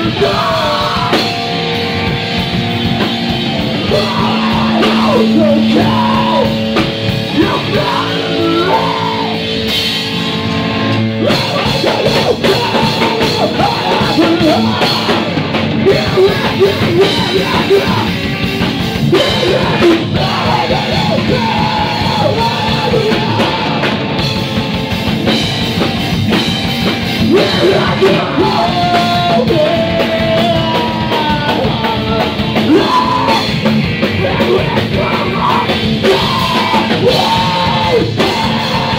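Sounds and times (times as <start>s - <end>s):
sung and shouted vocals: 0.0s - 1.5s, 3.8s - 6.6s, 11.2s - 18.2s, 19.0s - 24.0s, 27.2s - 38.9s
drum kit: 0.0s - 38.9s
electric guitar: 0.0s - 38.9s.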